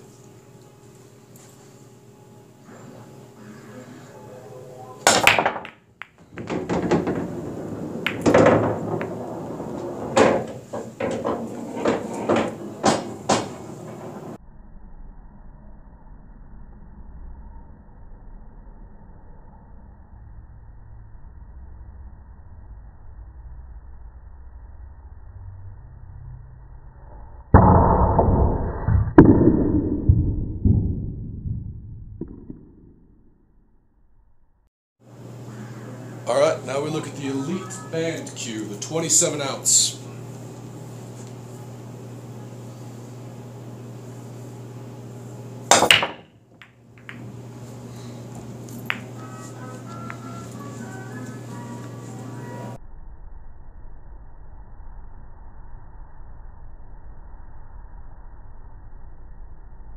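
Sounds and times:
cue striking pool break: 5.0s - 14.4s, 45.7s - 47.4s, 48.4s - 50.6s
pool balls clacking: 5.0s - 14.4s, 32.1s - 33.0s, 45.7s - 47.6s, 48.3s - 51.1s.

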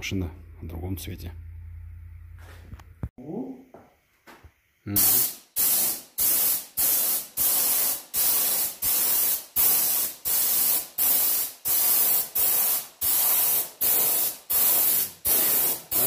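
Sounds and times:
spray gun hissing: 5.0s - 16.0s.

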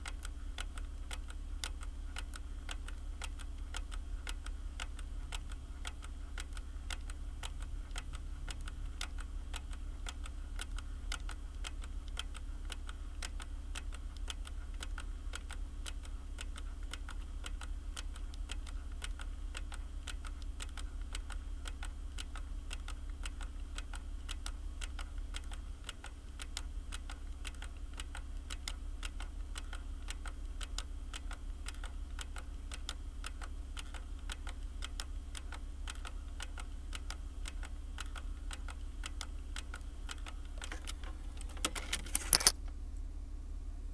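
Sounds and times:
steady low hum: 0.0s - 43.9s
keyboard typing: 37.6s - 42.6s.

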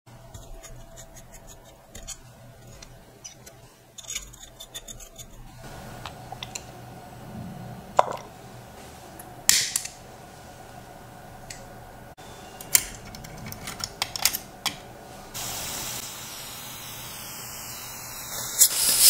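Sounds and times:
gas burner hiss: 14.7s - 19.0s.

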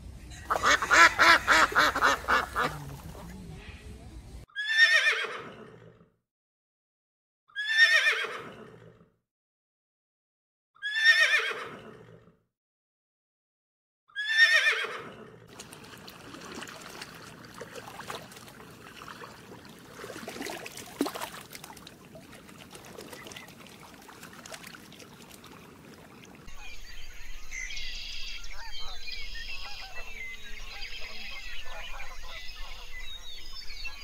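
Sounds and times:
horse whinnying: 4.6s - 5.9s, 7.6s - 8.9s, 10.8s - 12.2s, 14.2s - 15.2s.

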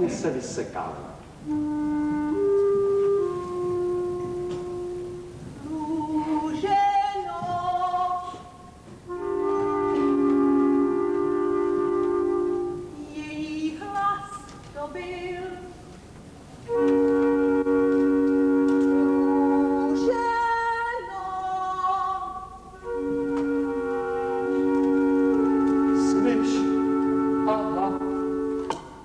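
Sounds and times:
wavering melodic phrases: 1.4s - 15.9s, 16.6s - 29.0s
loud held chords: 8.2s - 13.1s, 16.6s - 29.0s.

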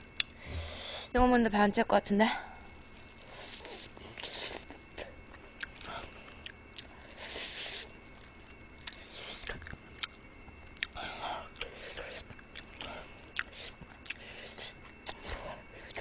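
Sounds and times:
chewing and sucking: 2.7s - 16.0s.

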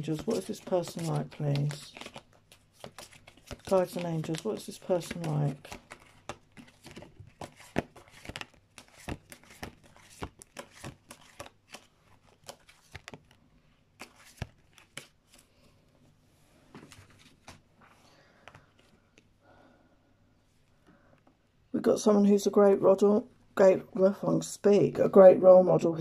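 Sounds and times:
cards shuffled by hand: 0.0s - 15.5s, 16.8s - 18.9s.

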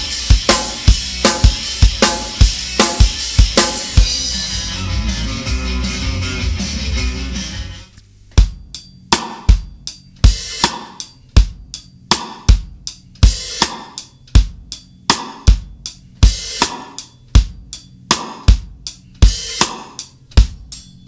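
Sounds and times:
drum kit rock beat: 0.0s - 21.0s
ringing cymbals: 18.9s - 21.0s.

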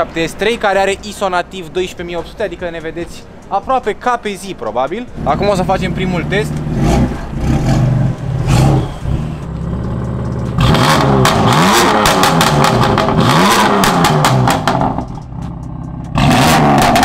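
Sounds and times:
exhaust crackles and pops: 0.2s - 17.0s
car engine revving: 4.9s - 17.0s.

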